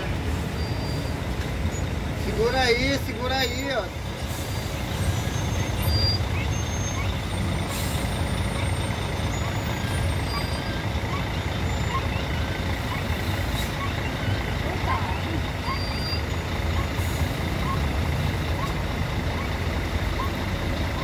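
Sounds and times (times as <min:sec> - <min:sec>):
vehicle engines rumbling: 0:00.0 - 0:21.0.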